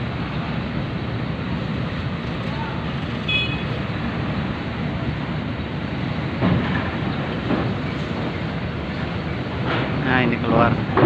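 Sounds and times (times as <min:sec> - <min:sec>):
diesel truck engine rumbling: 0:00.0 - 0:11.0.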